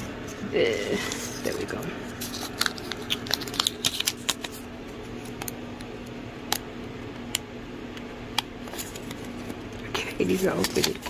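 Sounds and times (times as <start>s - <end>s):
faint steady hum: 0.0s - 11.0s
paper notes crinkling: 1.0s - 5.5s, 8.6s - 11.0s.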